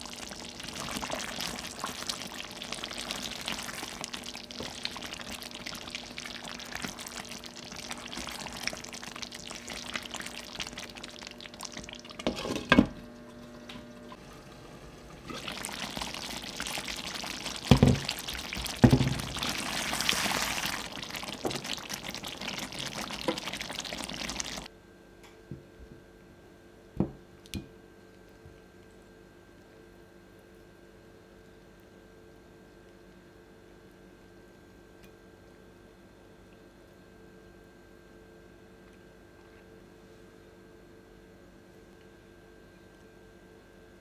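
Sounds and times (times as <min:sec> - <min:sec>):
thick sauce bubbling in pan: 0:00.0 - 0:12.5, 0:15.1 - 0:24.7.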